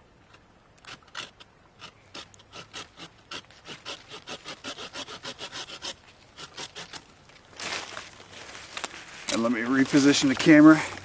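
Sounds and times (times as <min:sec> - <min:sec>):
hand saw cutting wood: 0:00.8 - 0:07.0.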